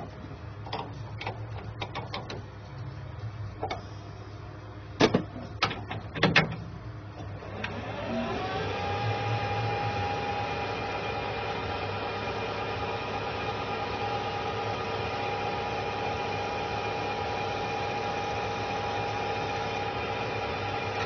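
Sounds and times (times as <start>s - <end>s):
lathe motor whining: 7.2s - 21.0s.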